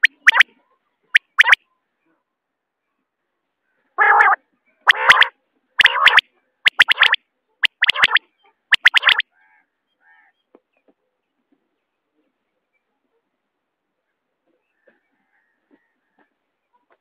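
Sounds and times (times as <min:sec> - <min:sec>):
quail calling: 0:00.0 - 0:00.5, 0:01.2 - 0:01.6, 0:04.0 - 0:09.2.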